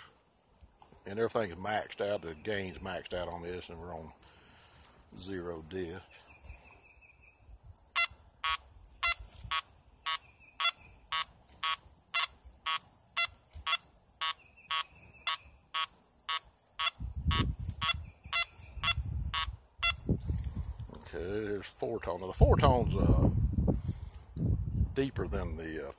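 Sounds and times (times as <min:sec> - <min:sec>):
metal detector buzzy beeps: 0:07.9 - 0:20.1.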